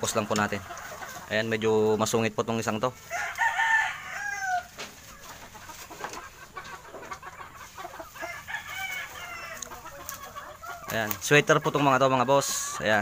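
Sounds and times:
rooster crowing: 3.0s - 4.8s, 8.2s - 9.7s.

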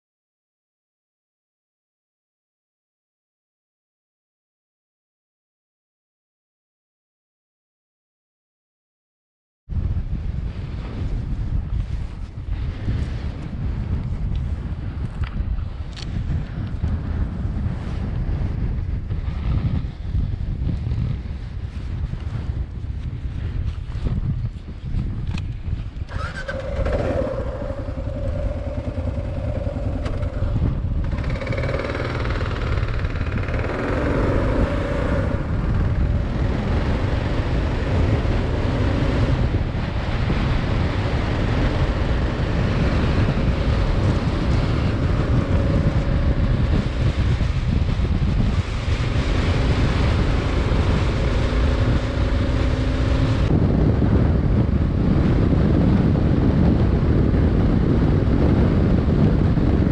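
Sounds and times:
wind rushing over microphone: 9.7s - 59.9s
motorcycle engine accelerating: 23.6s - 59.9s.

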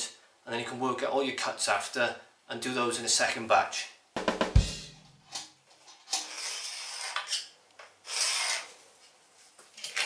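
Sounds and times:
scratchy marking strokes on floor: 8.1s - 8.8s.

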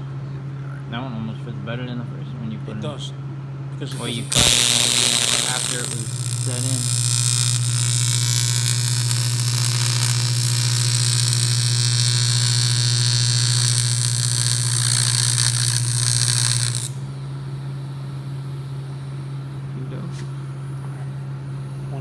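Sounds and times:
low hum from welder: 0.0s - 22.0s
welding arc buzzing: 3.9s - 17.2s.

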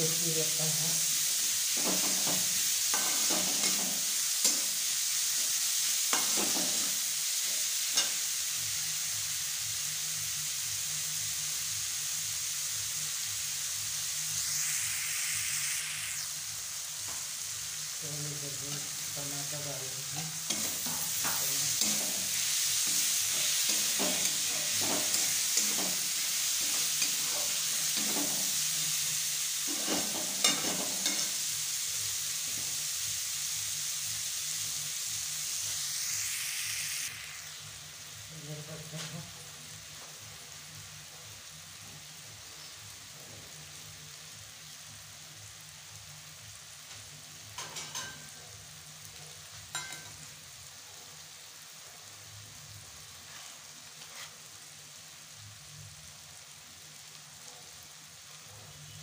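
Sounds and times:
onions sizzling in hot oil: 0.0s - 59.0s
spatula scraping and knocking pan: 1.8s - 4.7s, 20.2s - 28.6s, 29.7s - 31.4s.

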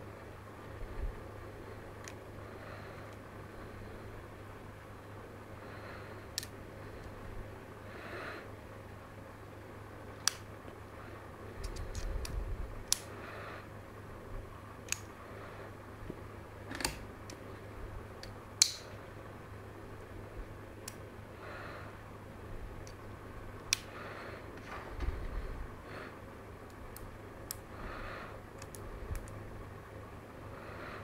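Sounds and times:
magnets clicking together: 11.6s - 13.1s
handling rumble: 22.6s - 29.7s.

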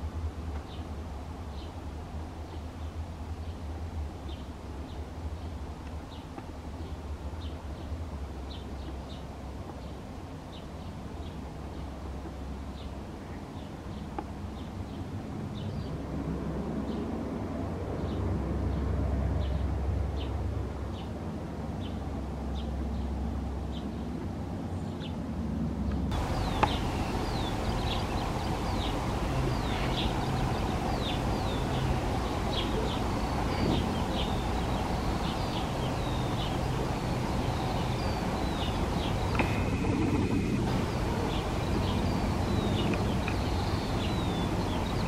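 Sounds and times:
low steady rumble: 15.1s - 45.0s
small birds chirping: 26.1s - 45.0s
steady hum: 26.1s - 45.0s.

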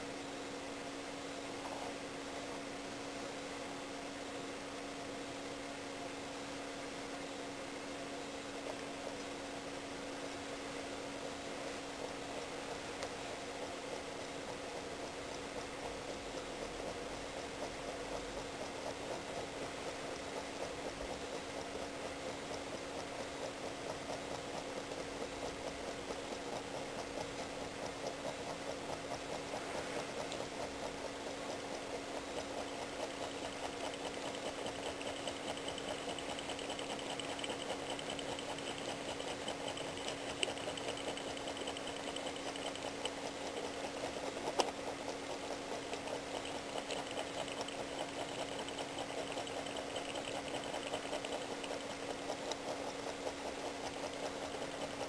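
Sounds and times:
sharp clicks: 20.1s - 55.0s.

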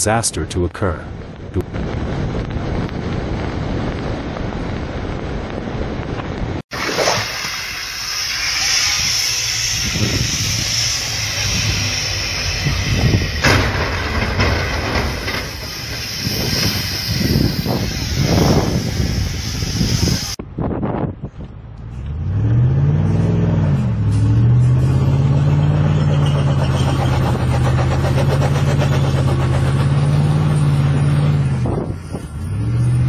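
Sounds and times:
strong wind on microphone: 1.1s - 6.6s, 8.9s - 21.6s, 31.5s - 32.6s
car driving on snowy road: 21.6s - 33.0s.

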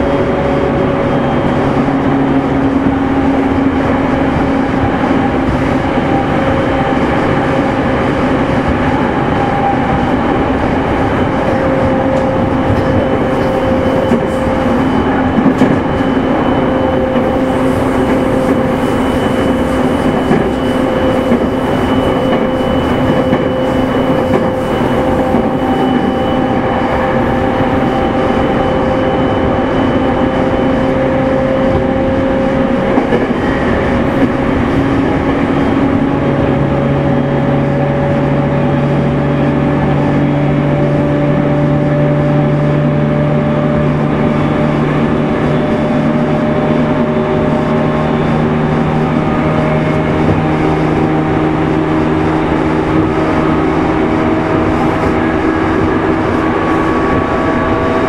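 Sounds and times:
train wheels rumbling on rail: 0.0s - 58.0s
traction motor whine: 8.6s - 41.3s.

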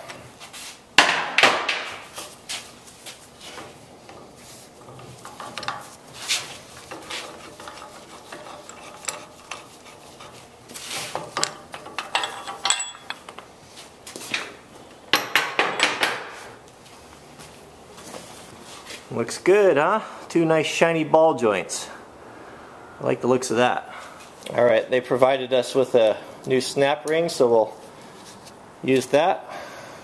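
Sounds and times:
metal tool clinking: 11.4s - 13.4s.

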